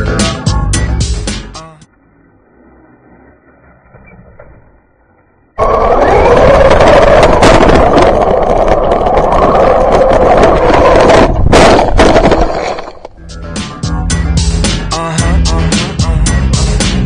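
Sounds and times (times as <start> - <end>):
music with a beat: 0.0 - 1.8, 13.2 - 17.0
rc car motor and tyre rush: 1.9 - 13.2
wind on microphone: 5.6 - 13.1.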